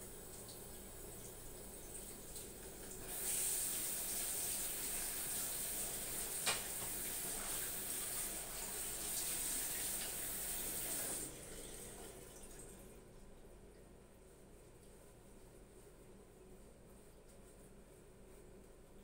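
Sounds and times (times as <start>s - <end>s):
tap running into sink: 6.0s - 7.6s.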